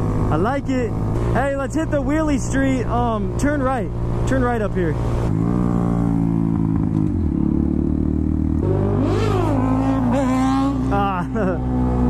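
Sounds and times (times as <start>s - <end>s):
motorcycle engine running: 0.0s - 12.0s
engine revving: 3.4s - 12.0s.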